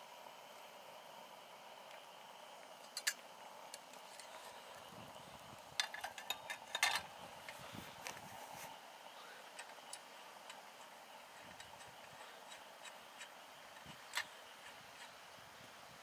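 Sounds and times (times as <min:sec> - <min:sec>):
low steady hiss: 0:00.0 - 0:16.0
light clicks handling a lantern: 0:02.8 - 0:04.9, 0:05.6 - 0:08.2, 0:09.5 - 0:15.2.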